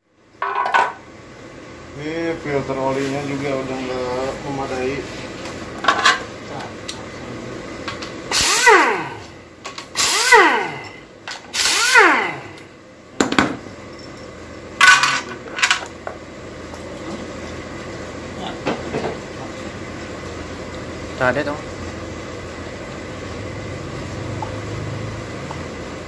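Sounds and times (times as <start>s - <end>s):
handheld power tool winding down: 8.3s - 12.7s.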